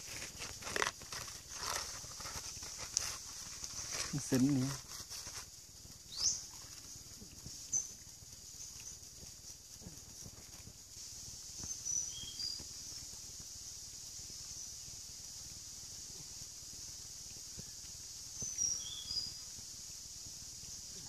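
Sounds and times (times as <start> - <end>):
insects buzzing: 0.0 - 21.0
bird whistled call: 6.1 - 6.4.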